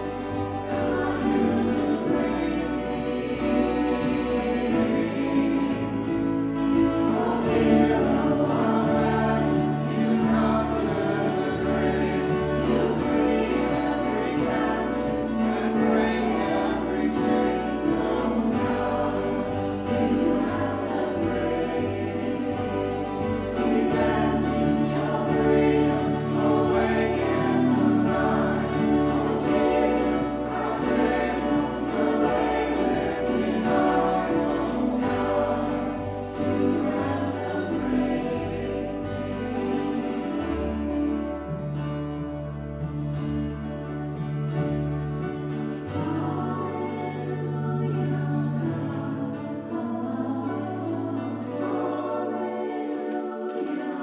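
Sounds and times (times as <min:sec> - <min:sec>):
acoustic guitar: 0:00.0 - 0:54.0
keyboard: 0:00.0 - 0:54.0
voices singing a hymn: 0:00.0 - 0:54.0.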